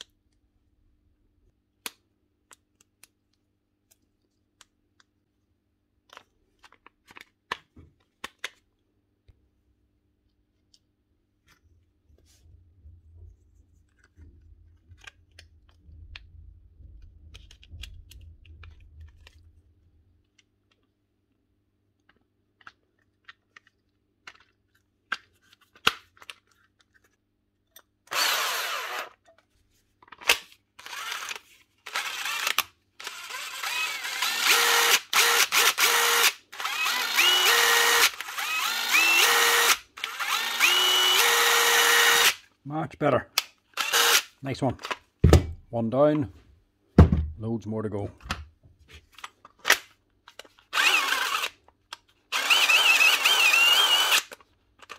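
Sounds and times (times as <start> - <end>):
impact driver motor whine: 28.1 - 29.1, 30.8 - 42.4, 43.8 - 44.2, 50.8 - 51.5, 52.4 - 54.3.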